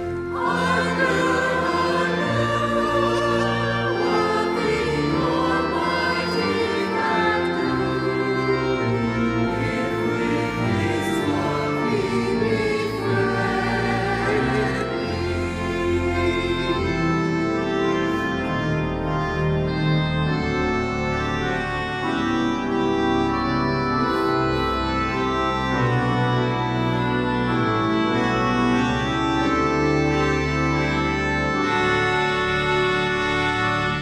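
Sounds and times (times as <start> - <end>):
church organ chords: 0.0 - 34.0.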